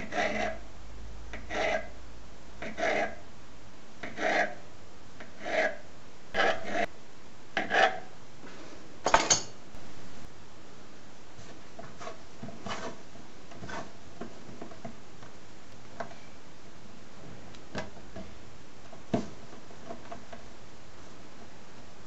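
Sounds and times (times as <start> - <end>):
knife cutting dough on countertop: 0.0 - 0.6, 1.3 - 2.0, 2.6 - 3.2, 4.0 - 4.6, 5.2 - 6.9, 7.6 - 8.1, 11.4 - 14.9.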